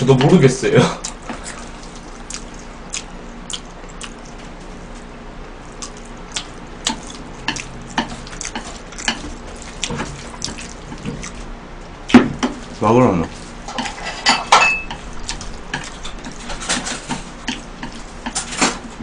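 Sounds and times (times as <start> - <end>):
chopsticks squelching in spaghetti: 5.7 - 11.5.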